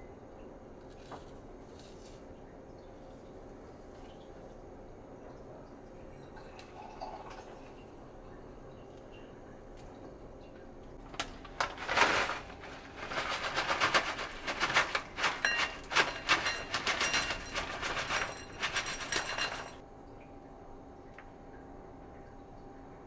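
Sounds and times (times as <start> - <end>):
granola rattling into bowl: 11.0 - 19.8
plastic bag crinkling: 11.0 - 19.8.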